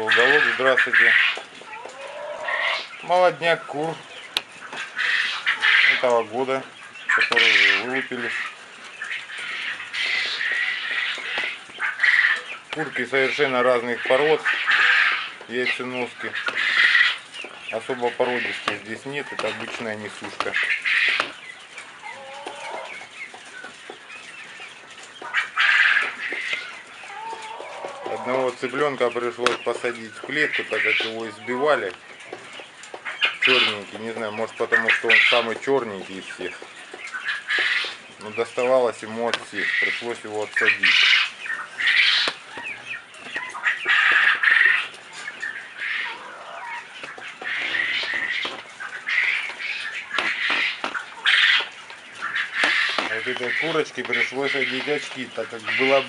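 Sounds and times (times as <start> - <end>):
chickens squawking: 0.0 - 56.0
chicks clucking and cheeping: 0.0 - 56.0.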